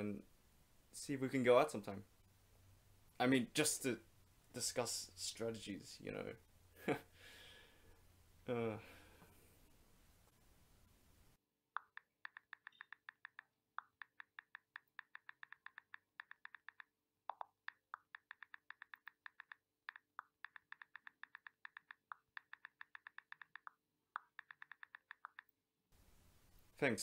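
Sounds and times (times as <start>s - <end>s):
quiet rapid typing: 12.2s - 16.9s, 17.6s - 25.5s.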